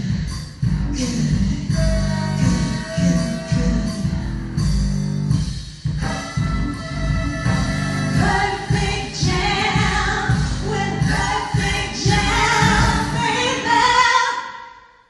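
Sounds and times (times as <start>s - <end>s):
pop backing track: 0.0s - 14.3s
layered vocal harmonies: 1.0s - 4.2s, 6.0s - 14.7s
woman singing: 8.2s - 14.6s.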